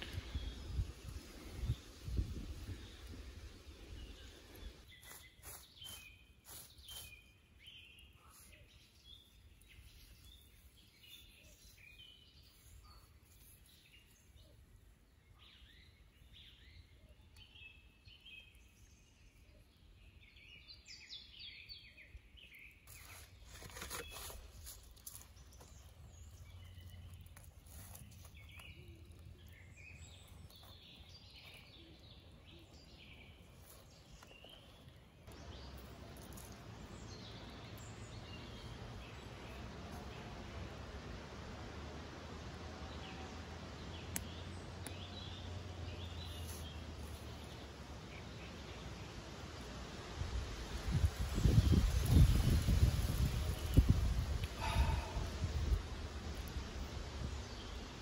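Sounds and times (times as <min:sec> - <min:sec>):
small birds chirping: 0:00.0 - 0:58.0
rustling and handling noises: 0:04.8 - 0:07.3, 0:22.9 - 0:29.5.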